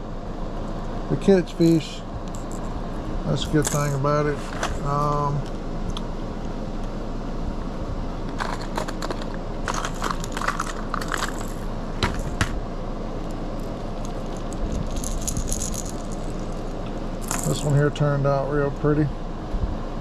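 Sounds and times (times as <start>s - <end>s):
steady low hum: 0.0s - 20.0s
plastic lures clattering in tray: 8.4s - 12.4s.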